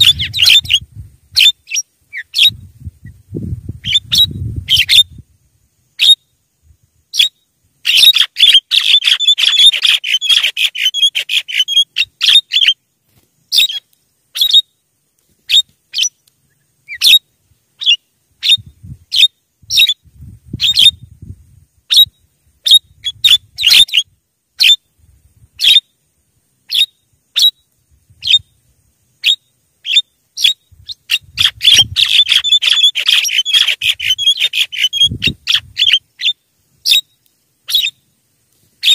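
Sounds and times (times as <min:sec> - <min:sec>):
myna calling and chattering: 0:00.0 - 0:03.2, 0:07.1 - 0:12.8, 0:29.2 - 0:38.0.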